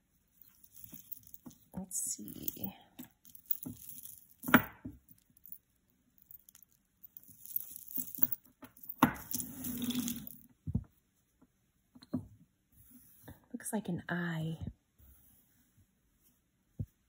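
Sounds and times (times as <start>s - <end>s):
jewelry rustling and clinking: 0.0s - 10.9s
beaded jewelry clacking: 0.3s - 10.5s.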